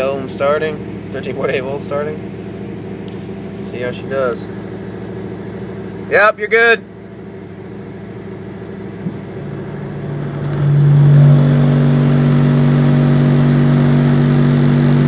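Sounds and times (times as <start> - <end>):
subwoofer low test tone: 8.7 - 15.0.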